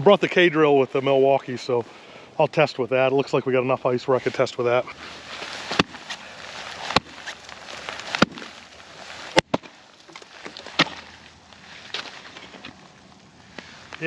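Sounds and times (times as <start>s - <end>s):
axe chopping ice: 5.6s - 7.4s, 8.0s - 8.5s, 9.3s - 11.1s.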